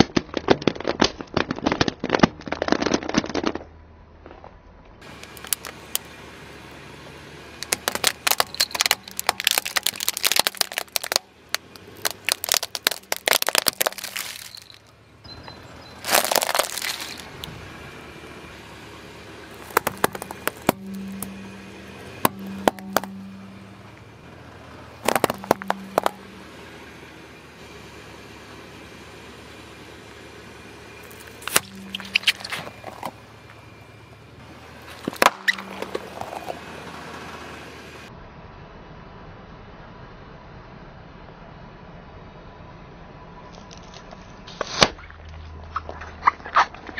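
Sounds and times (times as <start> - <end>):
tyre crushing plastic markers: 0.0 - 3.7, 7.6 - 14.9, 16.0 - 17.3, 19.5 - 21.2, 25.0 - 26.2
car engine humming: 4.9 - 38.2.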